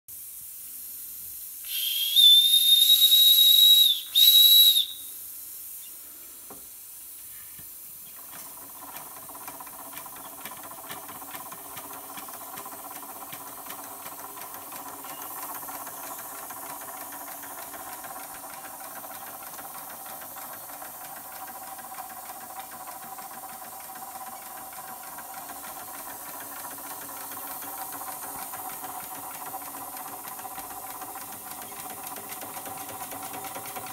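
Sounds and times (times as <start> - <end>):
soft steam hiss: 0.1 - 33.9
shrill steam whistle: 1.6 - 5.3
toy steam engine ticking: 8.1 - 33.9.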